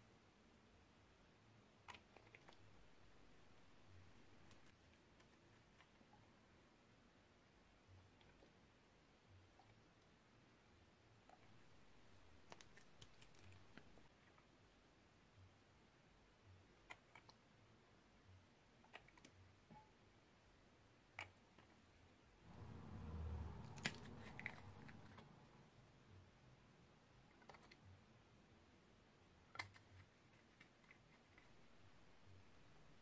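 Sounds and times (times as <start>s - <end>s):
low handling noise: 22.5s - 25.8s.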